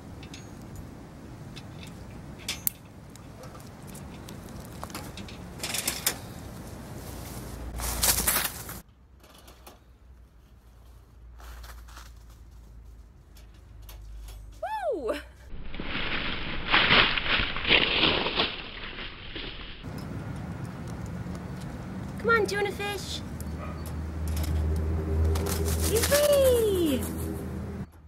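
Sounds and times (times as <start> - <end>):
metal trap clicks and creaks: 0.1 - 0.9, 1.5 - 6.3, 23.4 - 24.9
rustling: 2.8 - 8.8, 10.4 - 14.6, 24.3 - 27.6.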